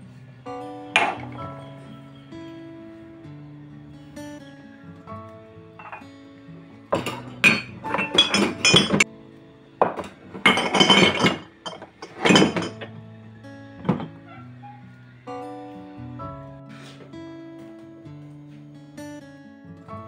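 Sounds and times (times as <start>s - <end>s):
ceramic dishes clinking: 1.0s - 1.7s, 5.8s - 6.1s, 6.9s - 9.1s, 9.8s - 12.9s, 13.8s - 14.8s.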